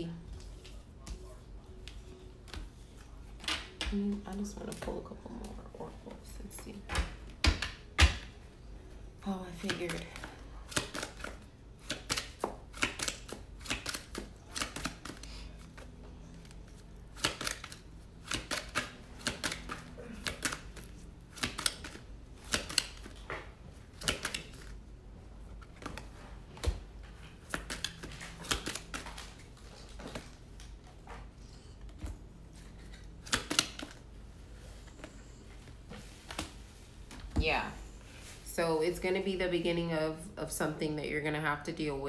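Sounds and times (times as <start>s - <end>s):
cards being shuffled: 9.5s - 24.8s, 25.5s - 31.3s, 31.9s - 36.7s.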